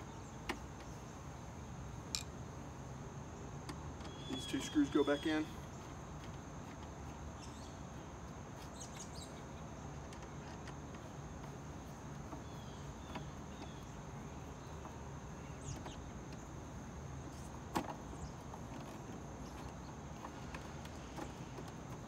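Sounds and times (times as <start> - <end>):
faint bird chirps: 4.0 - 5.9.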